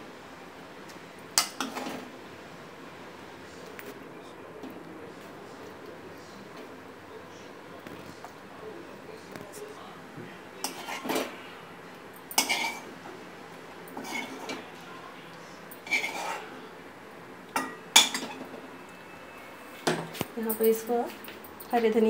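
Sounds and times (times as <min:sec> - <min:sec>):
ladle scraping and knocking pan: 0:10.6 - 0:11.4, 0:12.4 - 0:12.9, 0:14.0 - 0:14.6, 0:15.8 - 0:16.4.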